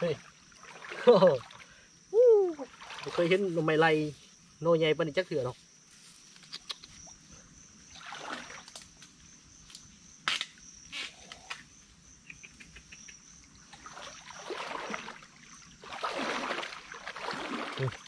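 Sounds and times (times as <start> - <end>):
rustling of brush and leaves: 2.6 - 7.2.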